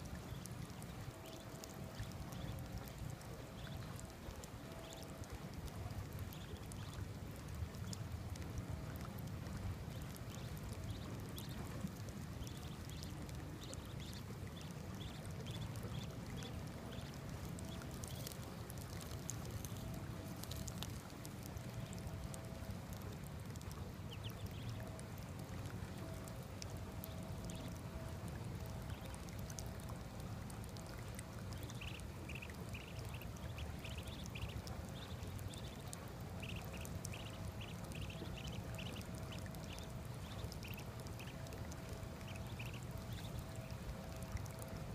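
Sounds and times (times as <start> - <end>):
ducklings peeping: 0.1 - 8.4, 9.1 - 21.1, 21.8 - 24.8, 27.0 - 27.8, 30.7 - 44.6.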